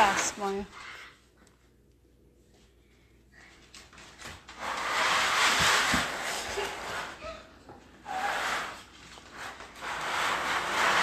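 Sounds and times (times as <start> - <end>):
plastic basket scraping on concrete: 4.2 - 7.2, 8.0 - 11.0.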